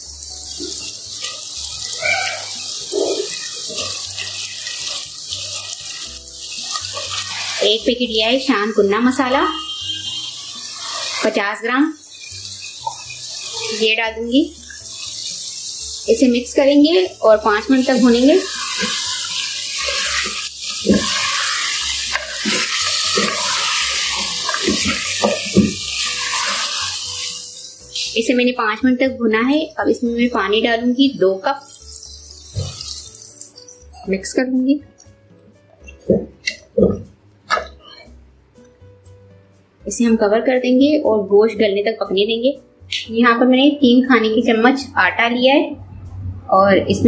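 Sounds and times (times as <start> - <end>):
meat sizzling in hot oil: 0.0 - 34.4.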